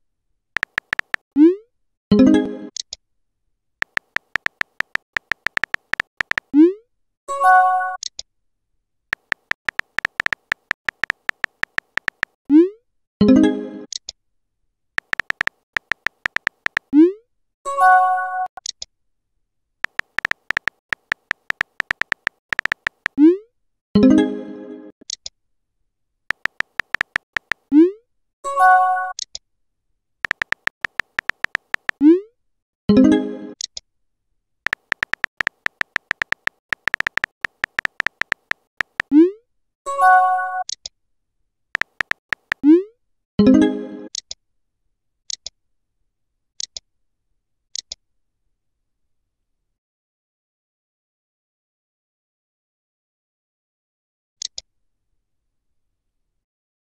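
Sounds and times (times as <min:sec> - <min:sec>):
rapid keyboard taps: 0:00.6 - 0:01.2, 0:03.8 - 0:06.5, 0:09.1 - 0:12.4, 0:15.0 - 0:16.9, 0:19.8 - 0:23.2, 0:26.3 - 0:27.7, 0:30.2 - 0:32.0, 0:34.7 - 0:39.1, 0:41.8 - 0:42.6.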